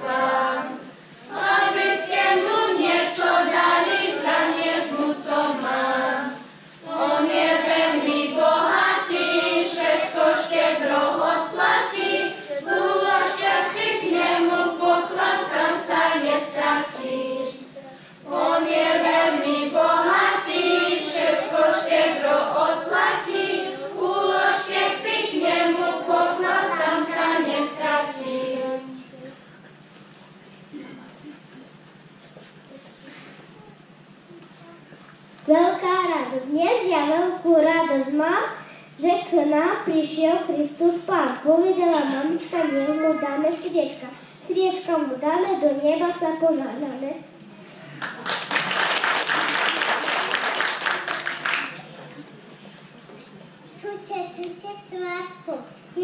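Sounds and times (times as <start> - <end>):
children's choir singing: 0.0 - 29.0.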